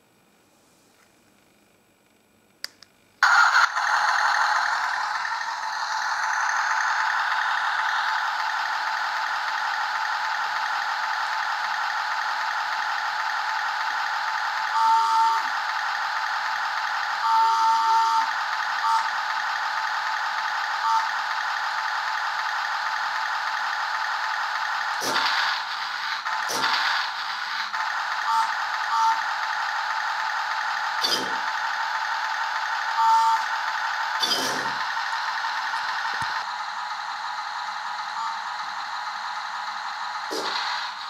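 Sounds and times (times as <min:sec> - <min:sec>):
toy tank engine sound effect: 0:03.2 - 0:41.0
turret whirring: 0:03.2 - 0:41.0.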